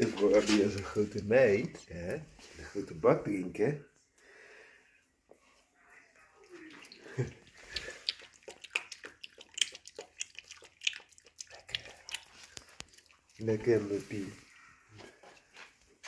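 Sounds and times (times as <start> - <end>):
dog lapping water: 6.6 - 13.5.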